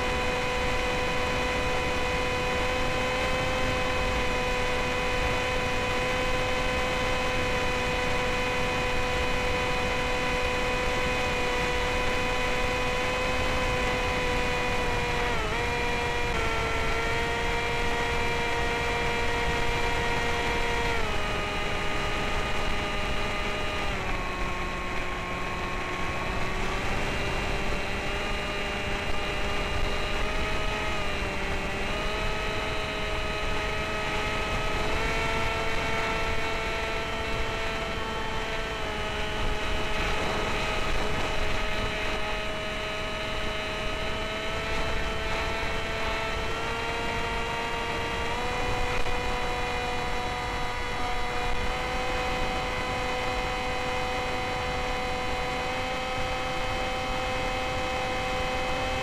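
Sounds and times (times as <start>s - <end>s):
electric motor whining: 11.9s - 54.5s.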